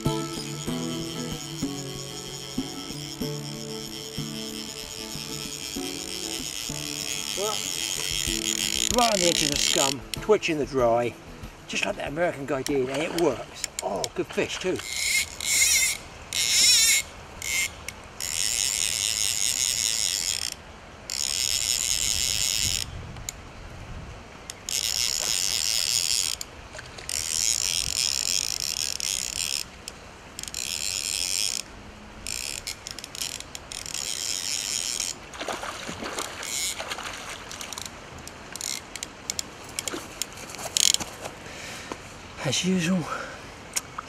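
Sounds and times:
fishing reel ratchet buzzing: 0:00.0 - 0:10.4, 0:14.8 - 0:22.9, 0:24.5 - 0:35.2, 0:36.4 - 0:36.8, 0:37.6 - 0:40.0.

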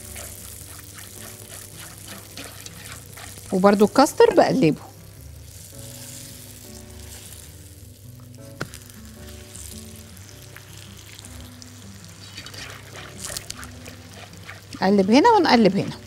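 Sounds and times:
pastry sizzling in a pan: 0:00.0 - 0:16.0
soft background music: 0:00.0 - 0:16.0.

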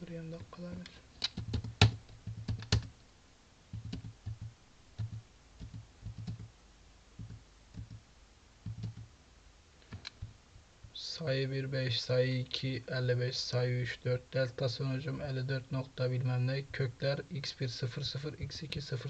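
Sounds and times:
computer keyboard typing: 0:00.7 - 0:02.9, 0:03.7 - 0:06.5, 0:07.2 - 0:08.0, 0:08.6 - 0:09.1.

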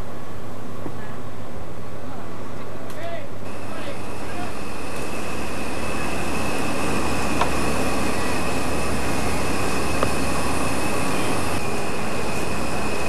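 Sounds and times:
diesel crane engine running: 0:03.4 - 0:13.0
high whine: 0:03.4 - 0:13.0.

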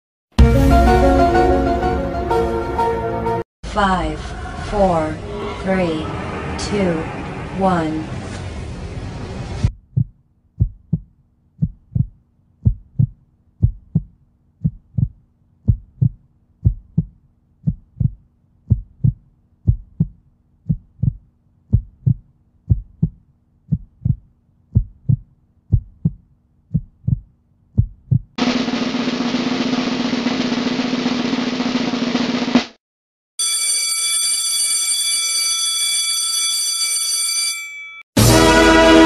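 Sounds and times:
heartbeat thumps: 0:09.7 - 0:28.4.

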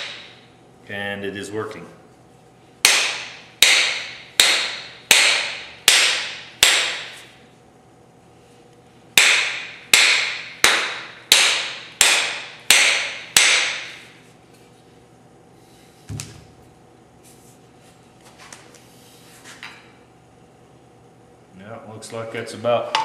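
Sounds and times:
hammer striking hammer head: 0:02.8 - 0:07.2, 0:09.2 - 0:13.9.

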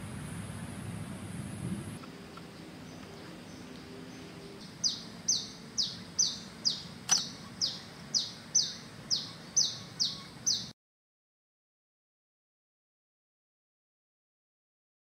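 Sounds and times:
bird chirping: 0:02.0 - 0:10.8
sharp click: 0:07.1 - 0:07.3.

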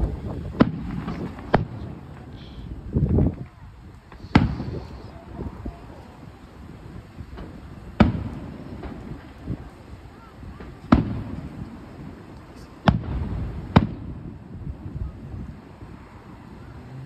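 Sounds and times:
firework shells booming: 0:00.0 - 0:06.2, 0:07.2 - 0:14.8
faint firework pops: 0:00.5 - 0:05.5, 0:07.2 - 0:09.7, 0:10.5 - 0:14.3.

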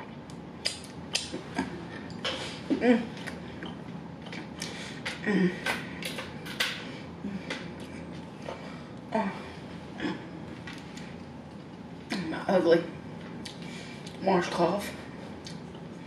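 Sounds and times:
person humming murmurs: 0:05.2 - 0:05.7.

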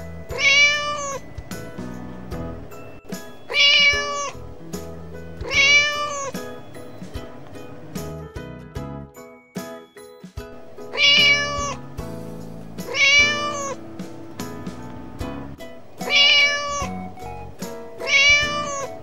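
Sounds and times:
background music: 0:00.0 - 0:19.0
kitten meowing: 0:00.3 - 0:01.3, 0:03.5 - 0:04.4, 0:05.4 - 0:06.4, 0:10.9 - 0:11.8, 0:12.8 - 0:13.8, 0:16.0 - 0:17.1, 0:18.0 - 0:19.0.

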